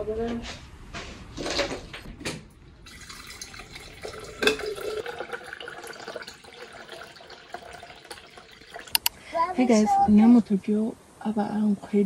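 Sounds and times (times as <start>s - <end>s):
water pouring into a tumbler: 2.8s - 9.1s.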